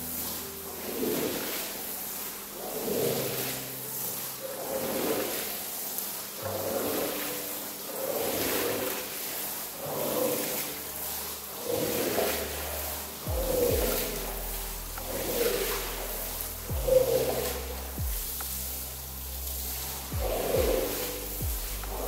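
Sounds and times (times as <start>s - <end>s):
pressure washer spray hissing: 0.0s - 22.0s.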